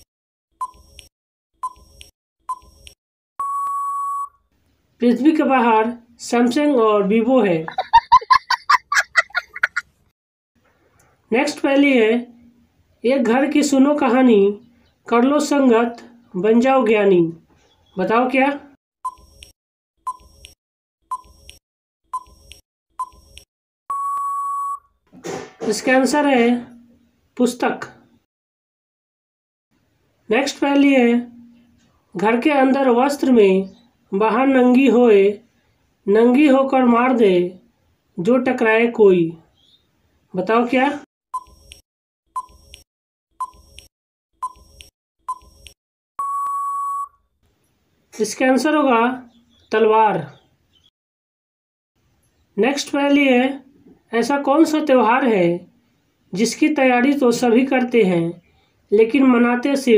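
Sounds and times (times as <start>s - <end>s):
long steady beep: 3.4s - 4.4s, 23.9s - 24.9s, 46.2s - 47.2s
short electronic beeps: 3.4s - 4.4s, 23.9s - 24.9s, 41.4s - 41.7s, 46.2s - 47.2s
countdown timer beeps: 46.2s - 47.1s.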